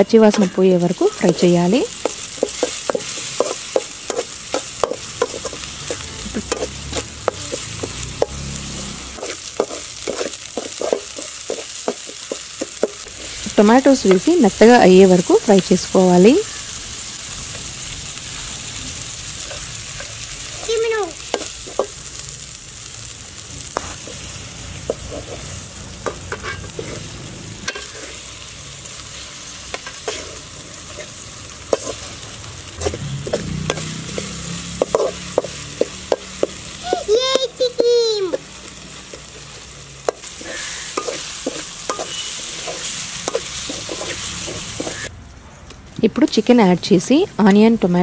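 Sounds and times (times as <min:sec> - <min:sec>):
vegetables sizzling in hot oil: 0:00.0 - 0:45.1
metal spatula scraping pan: 0:00.2 - 0:14.3, 0:24.9 - 0:28.4, 0:29.1 - 0:32.2, 0:32.8 - 0:36.6, 0:40.1 - 0:45.1.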